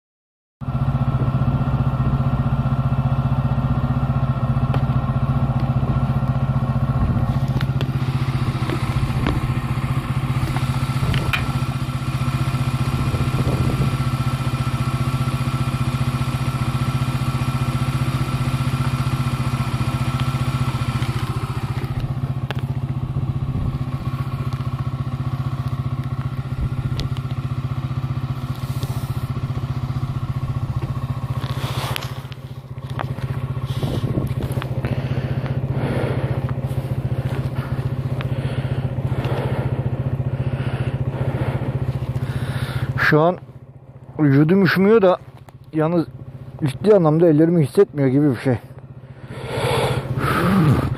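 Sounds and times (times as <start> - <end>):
motorcycle engine running: 0.6 - 50.9
hiss: 49.3 - 50.9.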